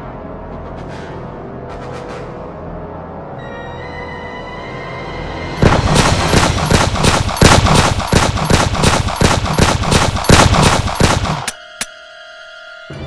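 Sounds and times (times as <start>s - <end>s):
pistol shots: 5.6s - 11.6s.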